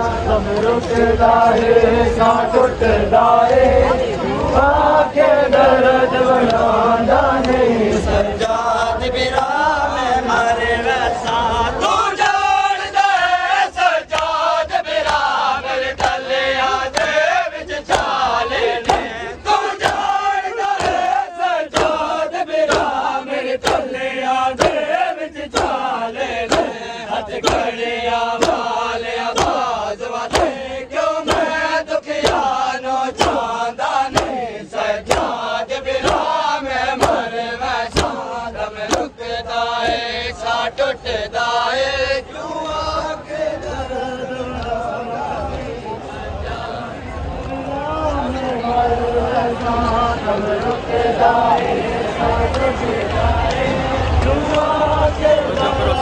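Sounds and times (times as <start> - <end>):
men chanting together: 0.0 - 56.0
hands slapping bare chests: 16.0 - 16.2, 17.9 - 18.2, 18.8 - 19.1, 19.8 - 20.2, 20.8 - 22.1, 22.7 - 23.0, 23.6 - 23.9, 24.6 - 24.9, 25.5 - 25.9, 26.5 - 26.8, 27.4 - 27.8, 28.4 - 30.6, 31.2 - 31.6, 32.2 - 34.4, 35.0 - 36.3, 37.0 - 37.3, 37.9 - 39.2.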